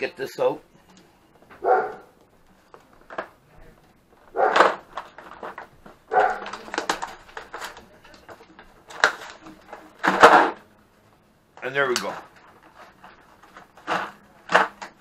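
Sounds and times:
plastic tray clicking and rattling: 4.5 - 10.6, 11.9 - 15.0.

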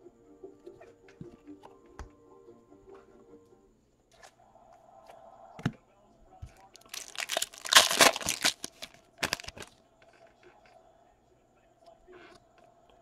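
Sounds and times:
foil wrapper tearing and crinkling: 6.8 - 9.7
short crackles: 6.8 - 9.7.

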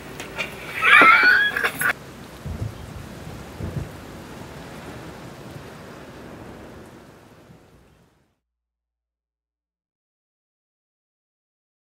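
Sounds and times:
steady rain: 0.0 - 8.4
low rumbles of thunder: 2.0 - 8.2.

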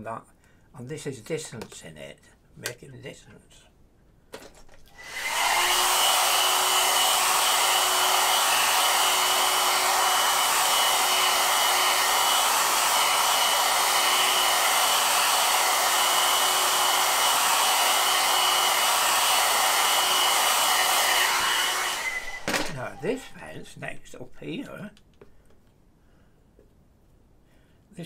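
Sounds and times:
hair dryer blowing: 4.9 - 23.6.

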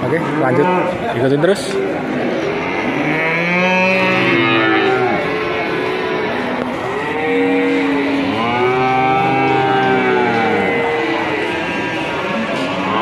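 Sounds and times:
cattle mooing: 0.2 - 13.0.

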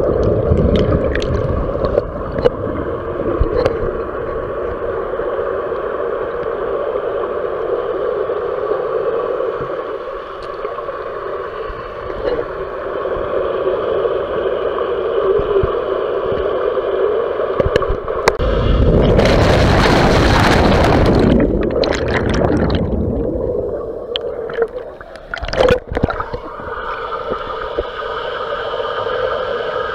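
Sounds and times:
water splashing: 0.0 - 4.2, 17.7 - 28.2
muffled underwater hum: 0.0 - 29.9
rush of water and bubbles: 0.0 - 29.9.

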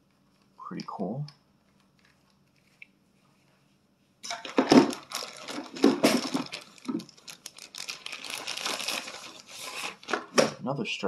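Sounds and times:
plastic packaging crinkling: 1.6 - 3.0, 4.2 - 10.5.

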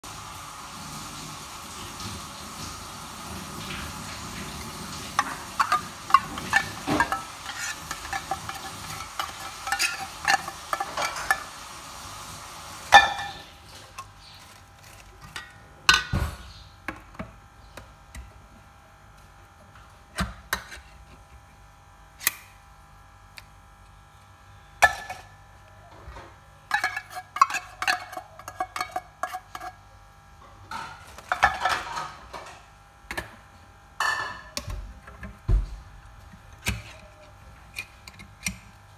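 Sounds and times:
metal spoon scraping steel bowl: 5.2 - 11.5, 26.7 - 29.8.

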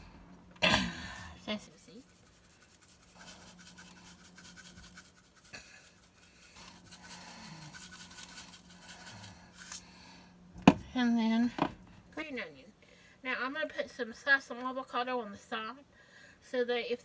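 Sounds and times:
seeds rattling in bottle: 1.7 - 9.8.

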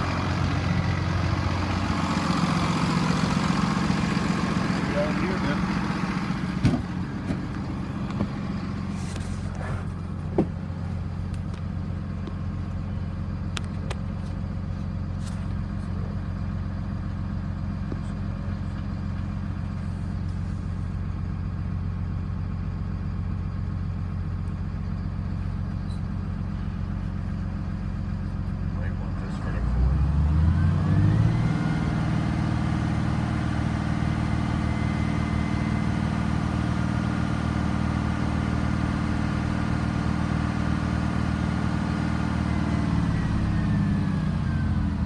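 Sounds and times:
diesel truck engine idling: 0.0 - 45.0
sharp knocks: 6.6 - 7.4.

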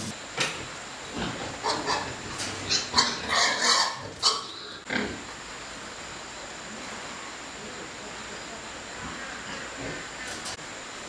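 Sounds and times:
pigs squealing and grunting: 1.1 - 5.2.

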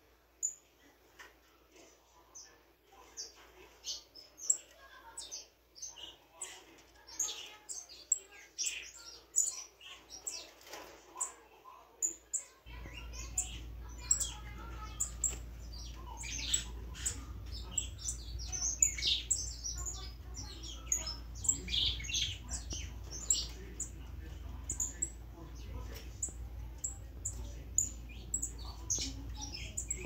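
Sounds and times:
finches chirping: 3.2 - 10.5, 12.0 - 30.0
steady low hum: 12.7 - 30.0.

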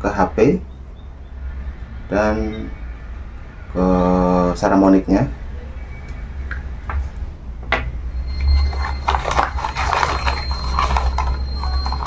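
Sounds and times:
cables being pulled from box: 8.3 - 12.0.

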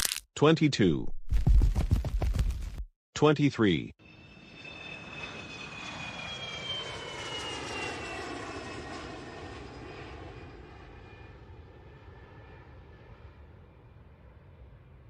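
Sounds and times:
jet airliner flying past: 4.0 - 15.0.

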